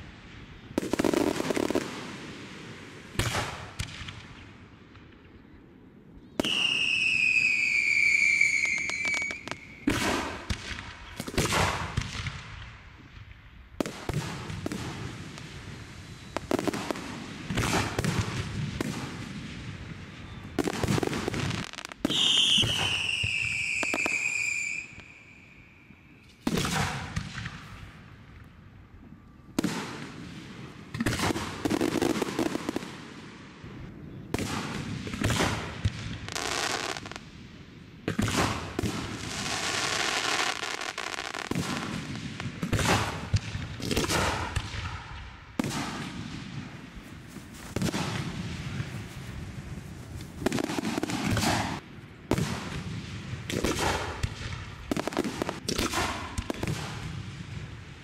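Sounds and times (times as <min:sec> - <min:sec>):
firework bursts and crackling: 0:00.0 - 0:04.7, 0:06.4 - 0:13.1, 0:13.8 - 0:25.6, 0:26.4 - 0:28.4, 0:29.6 - 0:33.7, 0:34.3 - 0:58.0
falling firework whistles: 0:06.4 - 0:10.4, 0:16.0 - 0:16.8, 0:20.2 - 0:27.5.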